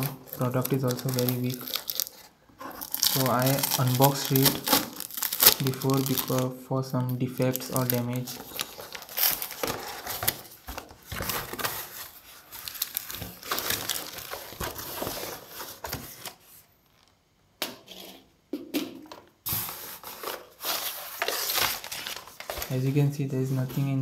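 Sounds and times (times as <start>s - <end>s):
cardboard scraping and rustling: 7.8s - 16.7s, 19.5s - 24.0s.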